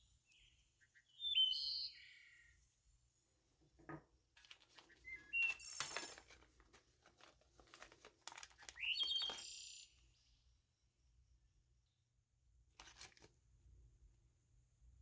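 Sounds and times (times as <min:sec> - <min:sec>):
bird chirping: 0:00.0 - 0:03.3, 0:04.6 - 0:06.4, 0:08.5 - 0:10.6
plastic bag crinkling: 0:04.4 - 0:09.6, 0:12.8 - 0:13.3.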